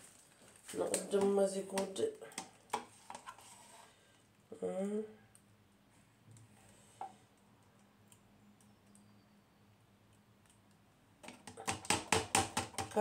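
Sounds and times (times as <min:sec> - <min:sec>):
metal spoon tapping plastic tub: 0:11.2 - 0:13.0.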